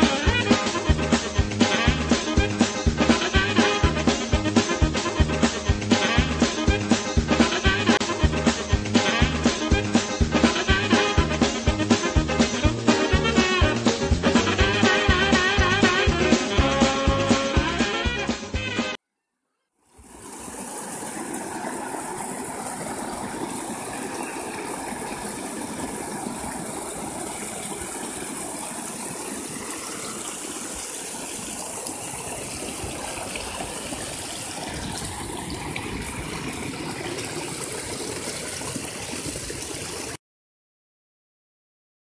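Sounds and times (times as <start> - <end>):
music: 0.0 - 19.0
stream rushing over rocks: 19.9 - 40.2.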